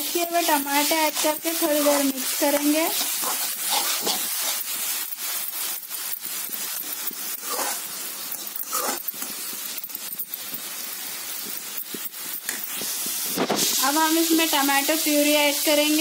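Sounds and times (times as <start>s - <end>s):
food sizzling in oil: 0.0s - 16.0s
metal spoon scraping pan: 0.1s - 10.4s.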